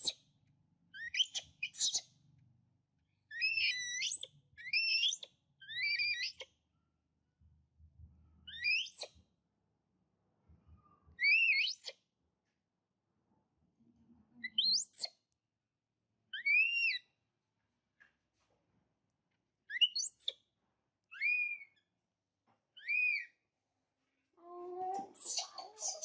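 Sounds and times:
infant monkey high-pitched calls: 3.3 - 6.4, 25.0 - 26.0.

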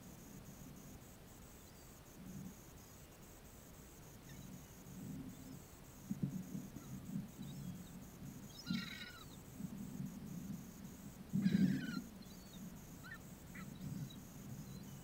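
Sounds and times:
gulls calling: 6.8 - 9.4, 11.4 - 15.0.

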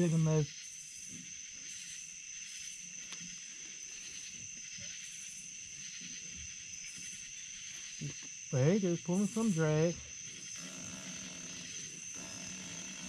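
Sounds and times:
faint high insect pulses: 0.0 - 13.0
insects shrill buzzing: 0.0 - 13.0.

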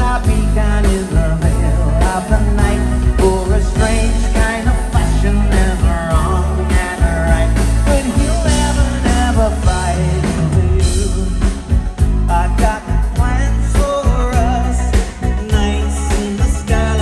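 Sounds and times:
man singing: 0.0 - 17.0
rock band playing: 0.0 - 17.0.

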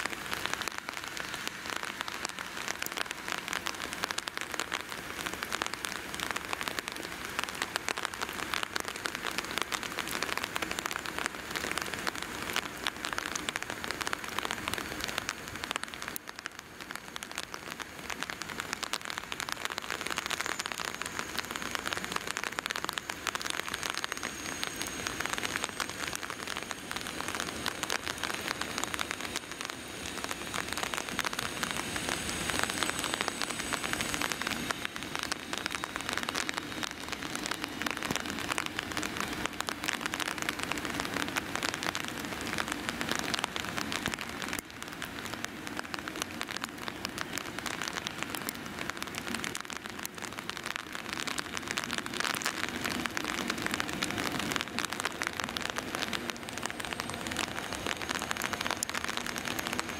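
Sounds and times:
steady rain falling: 0.0 - 59.9
electric train approaching: 30.2 - 37.2.

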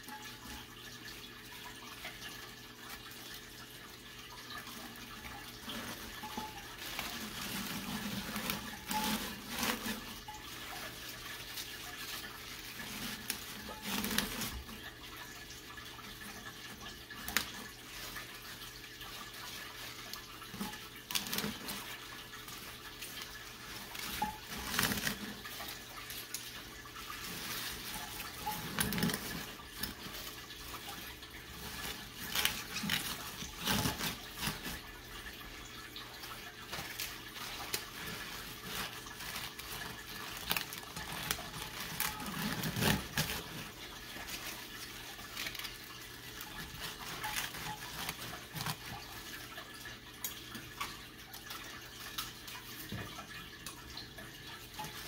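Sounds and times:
leaves rustling and crunching: 4.4 - 15.0, 16.3 - 49.3.

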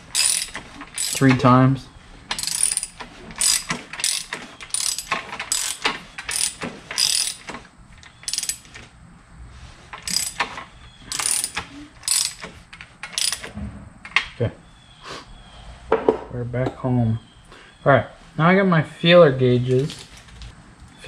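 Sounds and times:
ratchet wrench clicking: 0.1 - 1.4, 2.3 - 8.8, 10.0 - 13.5.

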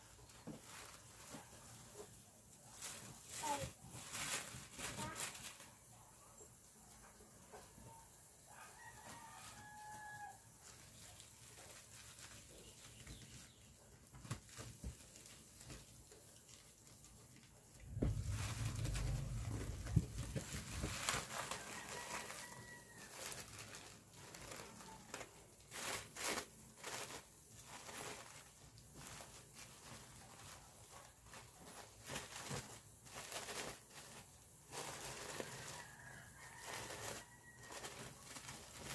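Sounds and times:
burlap and plastic rustling: 0.0 - 38.9
bumping and rustling: 17.7 - 21.3.

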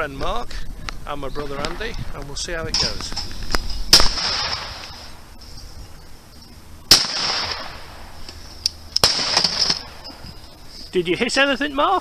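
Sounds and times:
shotgun shots echoing: 3.9 - 5.1, 6.9 - 8.2, 9.0 - 10.2.

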